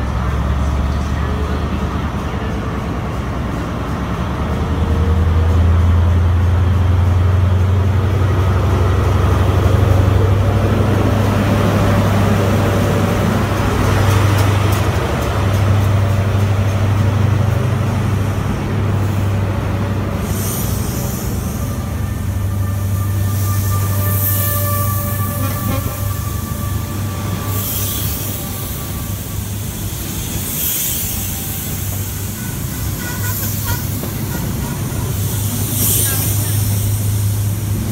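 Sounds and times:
deep diesel train hum: 0:00.0 - 0:37.9
high hiss: 0:20.2 - 0:37.9.

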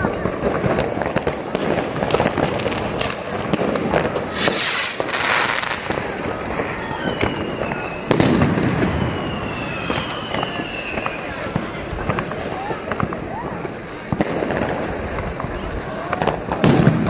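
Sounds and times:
fireworks bangs and crackles: 0:00.0 - 0:17.0
falling firework whistle: 0:04.2 - 0:05.9, 0:06.6 - 0:11.5
rocket launching hiss: 0:04.2 - 0:05.9.

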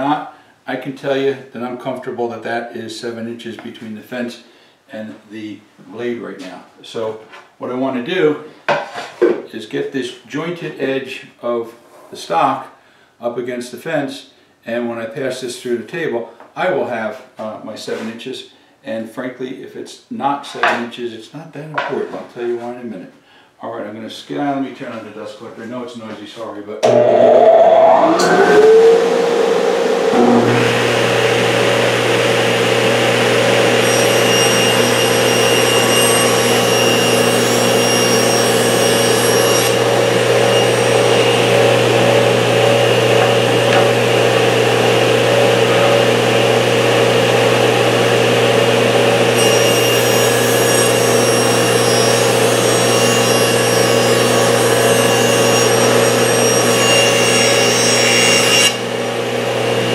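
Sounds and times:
dust collector running: 0:26.8 - 0:59.9
table saw humming: 0:26.8 - 0:59.9
saw blade cutting wood: 0:30.1 - 0:59.0.

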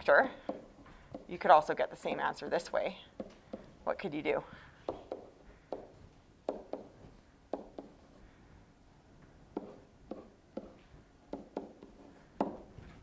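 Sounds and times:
stylus tapping on tablet: 0:04.8 - 0:08.0, 0:09.5 - 0:10.8.

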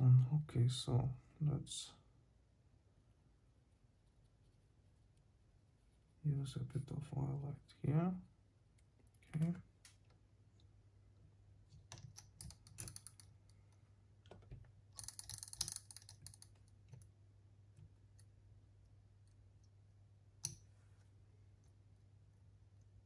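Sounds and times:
faint low hum: 0:00.0 - 0:23.0
small clicks and taps of tools: 0:11.7 - 0:17.1, 0:20.4 - 0:20.7.

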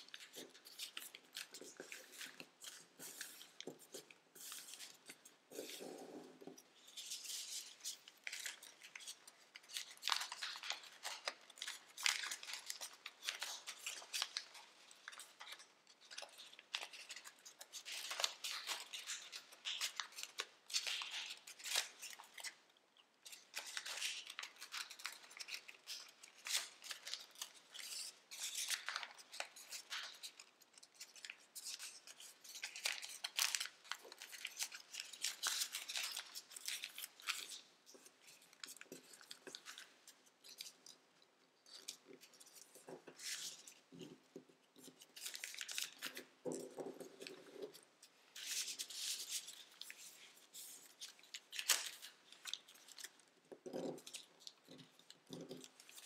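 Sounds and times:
foil paper crinkling: 0:23.6 - 0:41.0, 0:44.9 - 0:47.8, 0:48.4 - 0:56.0.

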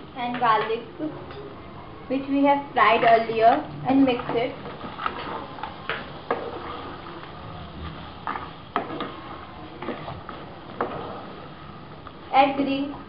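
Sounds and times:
spatula scraping a pan: 0:03.0 - 0:11.5.

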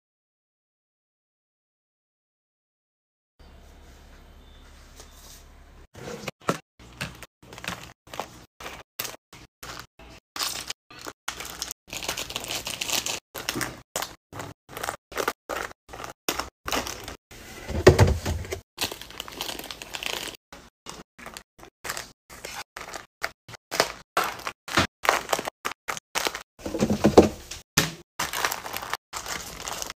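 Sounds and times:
plastic wrappers crinkling: 0:06.9 - 0:17.2, 0:18.8 - 0:27.6, 0:28.2 - 0:29.9
packs tapping plastic bin: 0:26.6 - 0:28.0.

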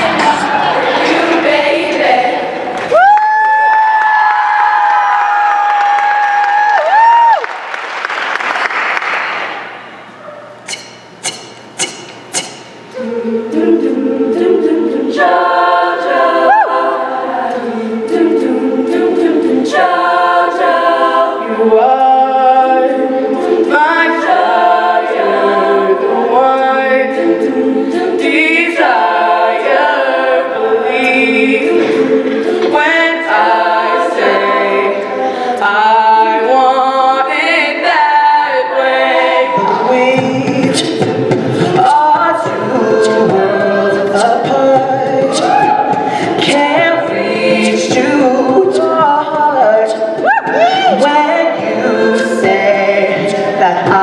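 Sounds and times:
choir singing a cappella: 0:00.0 - 0:02.8, 0:10.2 - 0:54.0
applause: 0:03.0 - 0:09.7.

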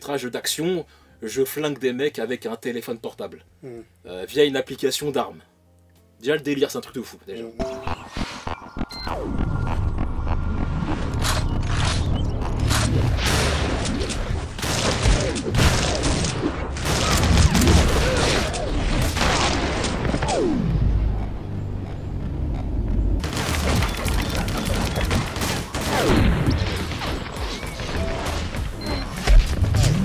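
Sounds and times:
film music score: 0:00.6 - 0:30.0
rapid gunshots: 0:10.7 - 0:20.6, 0:23.2 - 0:30.0.

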